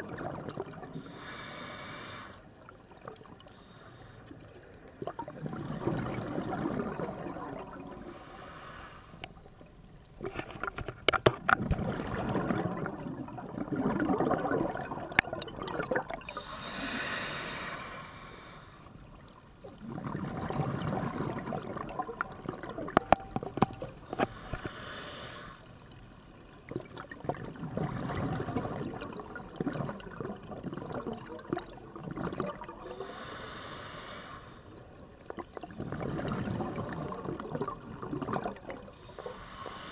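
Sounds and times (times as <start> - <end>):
exhaled bubbles rushing underwater: 0.0 - 1.3, 4.4 - 8.3, 10.1 - 16.9, 19.2 - 24.2, 26.4 - 33.2, 34.9 - 39.1
hiss of inhaled air: 1.1 - 2.4, 8.1 - 9.2, 16.3 - 18.8, 24.3 - 25.6, 33.0 - 34.7, 39.2 - 39.9.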